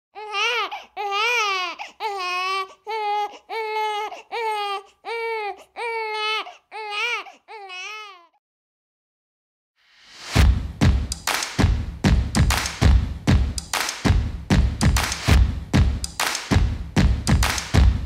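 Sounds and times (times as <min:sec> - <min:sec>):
newborn baby crying: 0:00.2 - 0:08.4.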